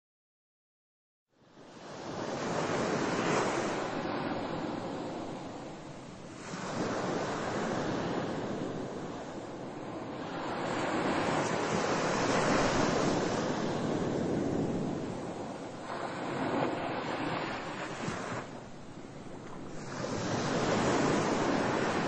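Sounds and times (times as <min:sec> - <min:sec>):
ocean waves washing in: 0:01.6 - 0:22.0.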